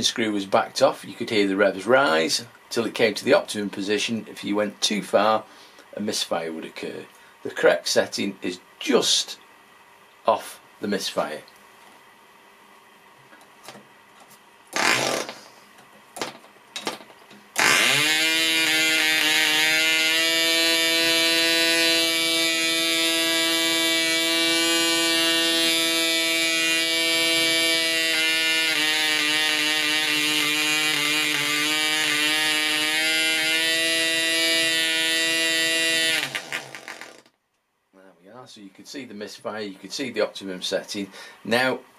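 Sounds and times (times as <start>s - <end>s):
model engine running at high revs: 17.6s - 37.2s.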